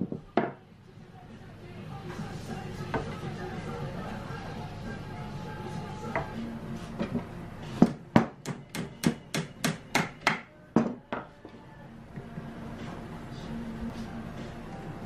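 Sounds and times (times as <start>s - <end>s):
rubber mallet striking wood: 7.8s - 11.3s.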